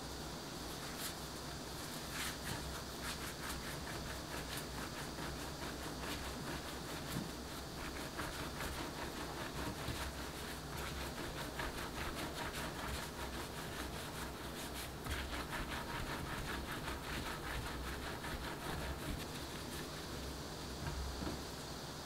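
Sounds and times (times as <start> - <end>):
hands rolling dough on table: 0.6 - 21.6.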